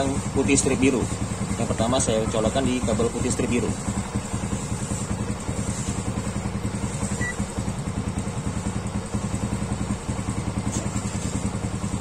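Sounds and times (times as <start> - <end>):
motorcycle engine idling: 0.0 - 12.0
high beep: 7.2 - 7.4.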